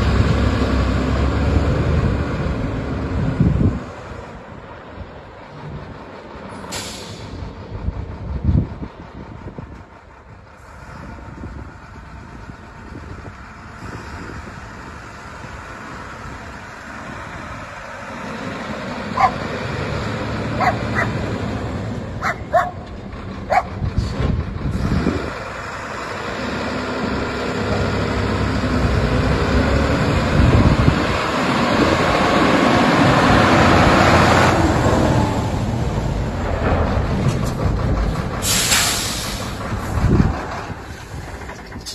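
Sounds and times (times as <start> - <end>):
diesel truck engine driving: 0.0 - 41.9
dog barking: 19.2 - 19.4, 20.6 - 21.2, 22.2 - 22.8, 23.5 - 23.7.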